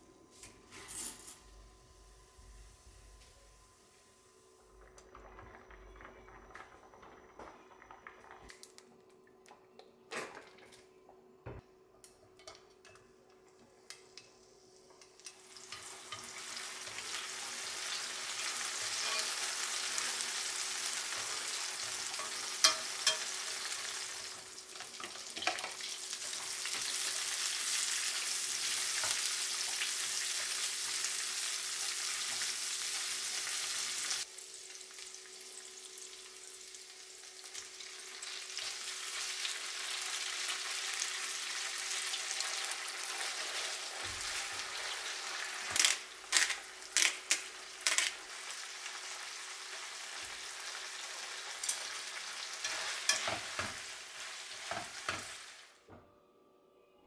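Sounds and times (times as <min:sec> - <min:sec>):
garlic sizzling in hot oil: 0:15.2 - 0:55.7.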